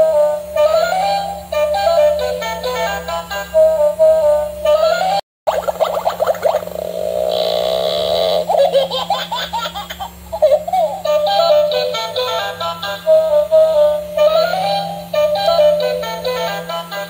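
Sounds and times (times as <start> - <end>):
tinny electronic tune: 5.5 - 8.5
synthetic giggling voice: 5.5 - 11.2.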